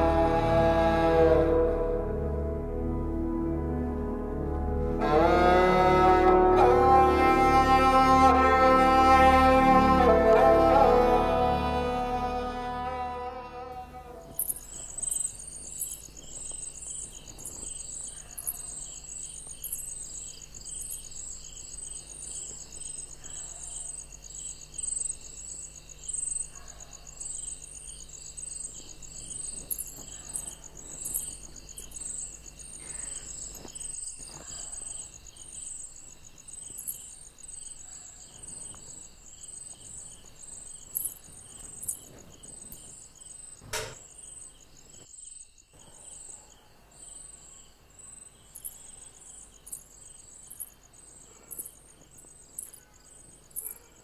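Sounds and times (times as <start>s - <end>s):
crickets chirping: 13.7s - 54.0s
single knock: 43.6s - 44.1s.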